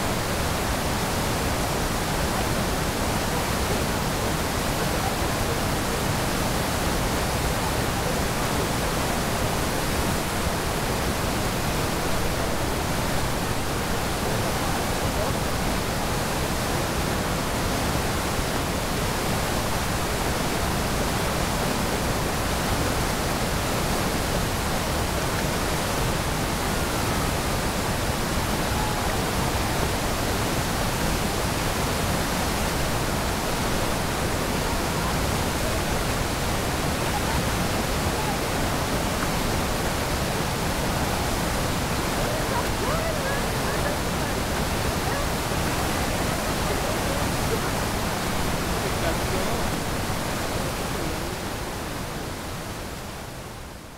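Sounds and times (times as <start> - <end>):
waterfall rushing: 0.0 - 53.9
faint voices: 26.3 - 52.4.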